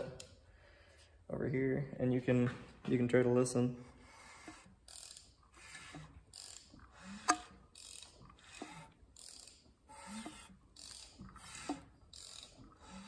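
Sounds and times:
engine turned over by wrench: 0:04.1 - 0:13.0.

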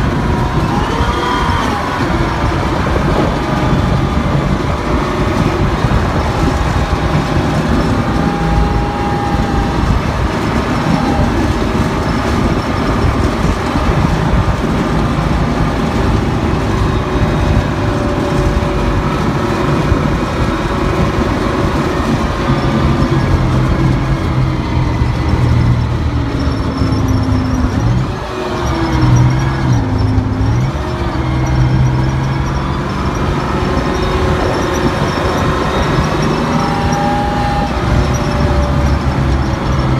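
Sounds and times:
military vehicle engine drone: 0:00.0 - 0:39.9
running gear rumble: 0:00.0 - 0:39.9.

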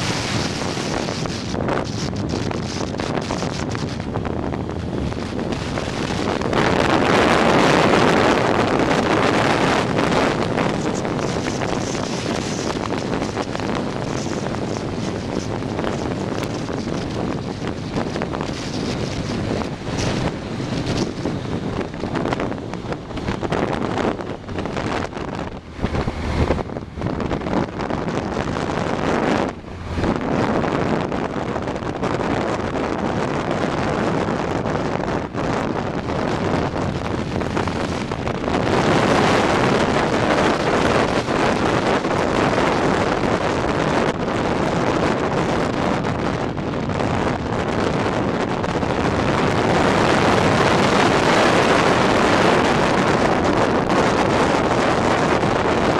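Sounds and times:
motorcycle engine: 0:00.0 - 0:33.2
road noise: 0:00.0 - 0:55.9
wind rushing over microphone: 0:00.0 - 0:55.9.

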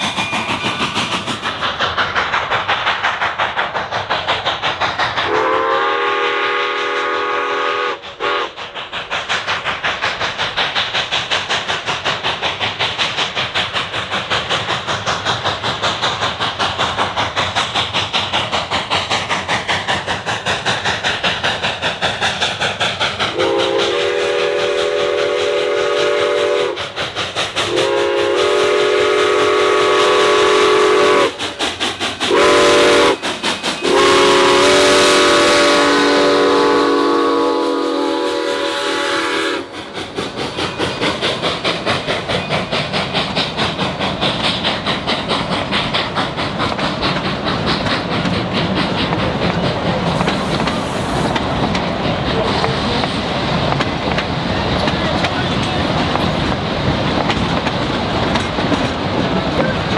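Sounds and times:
steam locomotive exhaust beat: 0:00.0 - 0:59.9
steam whistle blasts: 0:05.3 - 0:08.6, 0:23.3 - 0:26.8, 0:27.7 - 0:31.4, 0:32.3 - 0:33.2, 0:33.8 - 0:39.7.

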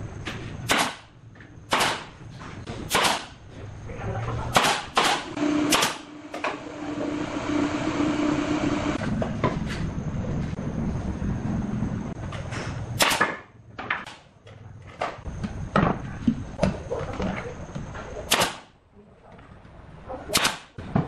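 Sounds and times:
steady hum: 0:00.0 - 0:19.2
nail gun firing: 0:00.7 - 0:01.1, 0:01.7 - 0:02.2, 0:02.9 - 0:03.4, 0:04.5 - 0:06.1, 0:13.0 - 0:13.4, 0:18.3 - 0:18.7, 0:20.3 - 0:20.8.

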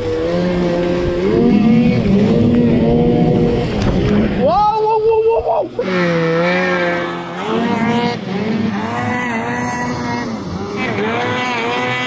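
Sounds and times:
snowmobile engine at high revs: 0:00.0 - 0:04.5, 0:05.7 - 0:12.0.

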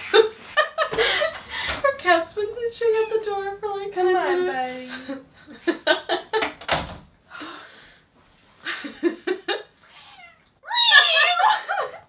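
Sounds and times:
people laughing: 0:10.9 - 0:12.0.

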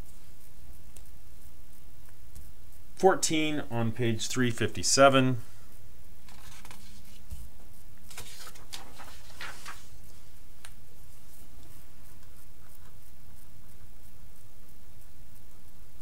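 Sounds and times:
steady low hum: 0:00.0 - 0:16.0
paper rustling: 0:06.2 - 0:13.0.

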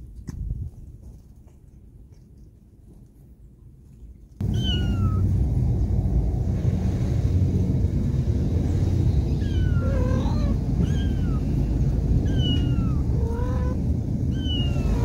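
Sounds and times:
cat mewing: 0:04.4 - 0:05.2, 0:09.3 - 0:15.0
steady low rumble: 0:04.4 - 0:15.0.

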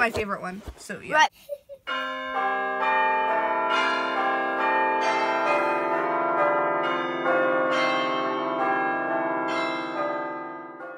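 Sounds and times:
church bells ringing: 0:01.9 - 0:10.9.

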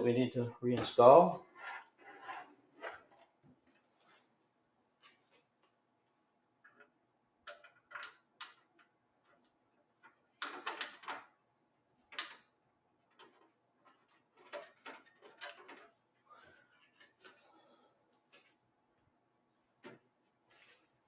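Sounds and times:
hands handling metal computer case: 0:07.5 - 0:11.3, 0:13.1 - 0:16.0.

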